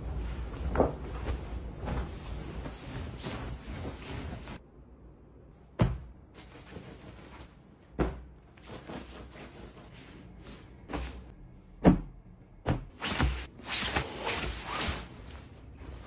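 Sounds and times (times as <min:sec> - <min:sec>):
fabric rustling: 0:00.0 - 0:04.6.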